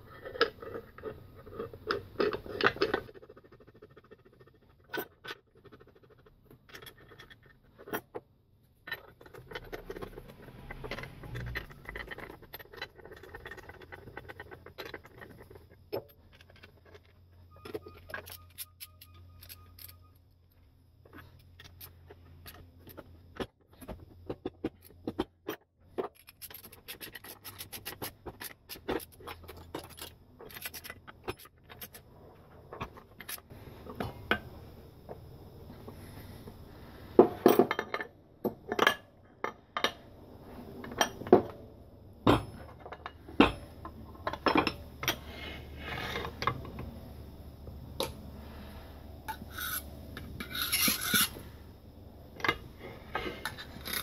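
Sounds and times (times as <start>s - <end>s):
metal parts clicking and scraping: 0.0s - 34.4s, 48.0s - 51.7s, 52.4s - 54.0s.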